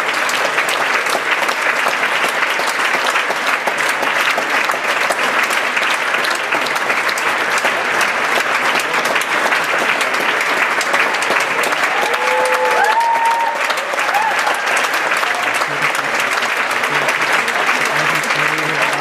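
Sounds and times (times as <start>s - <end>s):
audience clapping: 0.0s - 19.0s
crowd cheering: 0.0s - 19.0s.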